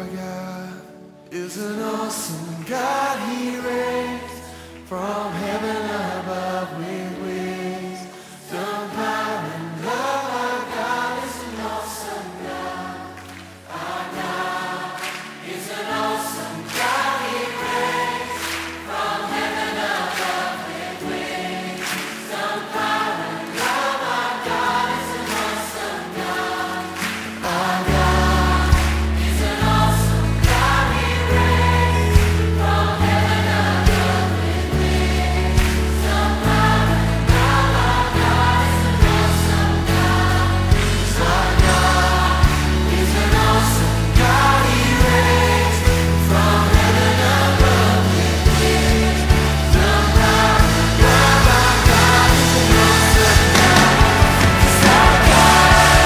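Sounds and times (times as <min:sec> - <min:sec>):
choir singing a worship song: 0:00.0 - 0:56.0
deep bass line: 0:48.5 - 0:56.0
drum beat: 0:49.9 - 0:56.0.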